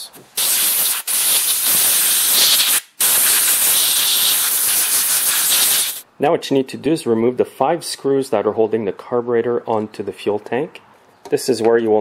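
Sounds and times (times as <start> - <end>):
compressed air blow gun hissing: 0.4 - 6.0.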